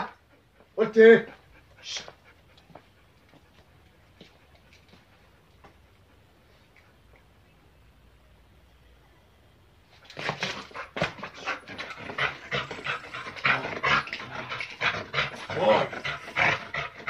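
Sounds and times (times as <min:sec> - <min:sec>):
dog panting hard: 0:00.1 - 0:06.5, 0:10.5 - 0:17.0.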